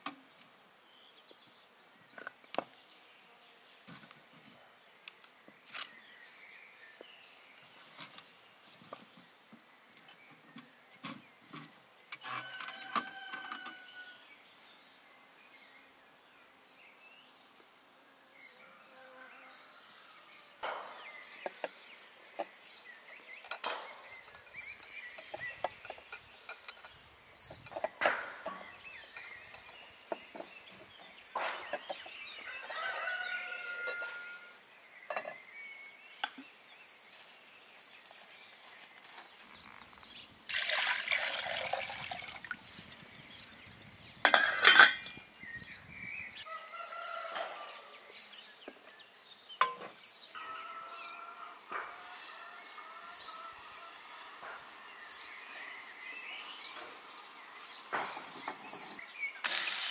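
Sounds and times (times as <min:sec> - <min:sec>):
small birds chirping: 0:00.4 - 0:51.3, 0:52.0 - 0:59.9
rooster crowing: 0:12.2 - 0:14.3, 0:32.4 - 0:34.6, 0:46.5 - 0:48.1, 0:50.4 - 0:54.1
metal cookware clinking: 0:44.3 - 0:45.2.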